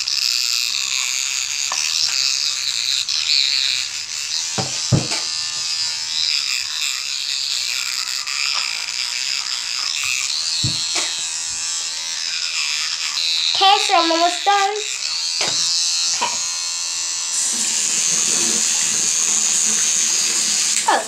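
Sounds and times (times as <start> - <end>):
electric toothbrush buzzing: 0.0 - 21.0
dull knocks: 4.6 - 5.2, 10.6 - 11.1.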